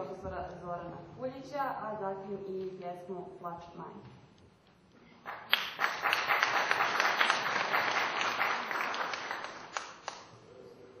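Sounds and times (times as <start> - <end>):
audience applauding: 5.3 - 10.3.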